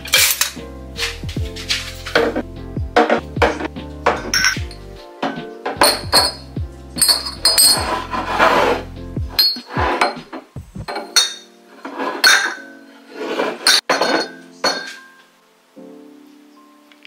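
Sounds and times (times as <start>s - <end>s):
music with bass line: 0.0s - 10.9s
dishes clinking and knocking: 1.8s - 2.4s, 3.0s - 6.4s, 7.0s - 8.0s, 9.4s - 12.7s, 13.4s - 15.2s.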